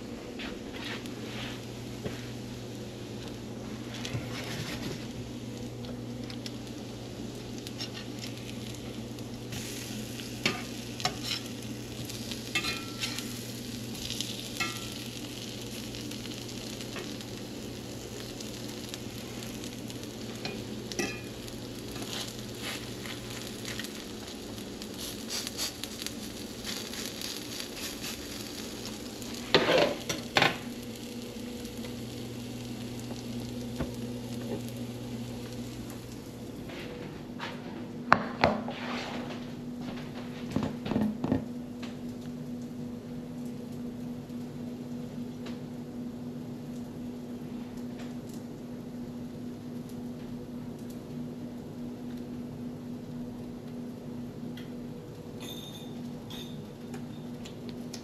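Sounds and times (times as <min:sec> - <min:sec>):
low electrical hum: 0:00.0 - 0:58.0
patties sizzling in a frying pan: 0:00.9 - 0:36.7
fork scraping and tapping pan: 0:12.6 - 0:13.2
clatter of utensils: 0:55.4 - 0:56.6.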